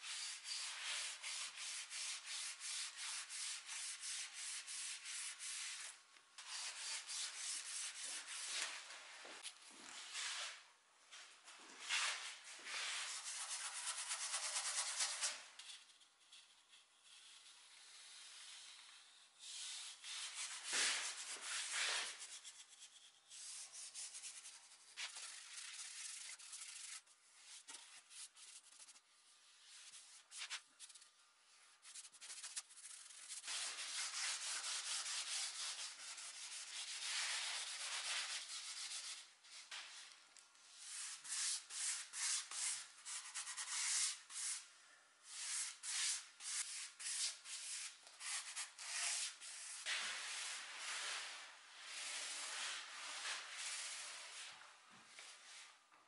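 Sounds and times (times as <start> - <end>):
brush and rag rubbing on wood: 19.4 - 31.0, 31.8 - 39.6.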